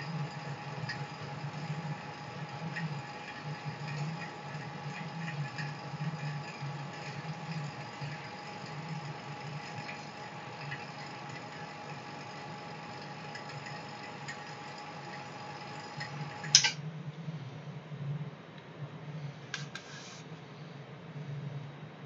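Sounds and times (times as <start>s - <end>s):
vacuum pump running: 0.0s - 16.8s.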